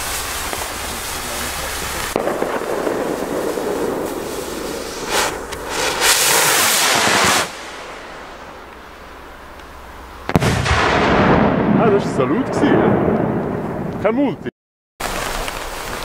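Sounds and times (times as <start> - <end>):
rush of noise: 0.0 - 9.5
fireworks crackling hiss: 0.0 - 10.7, 15.0 - 16.0
sharp bang: 10.3 - 14.2.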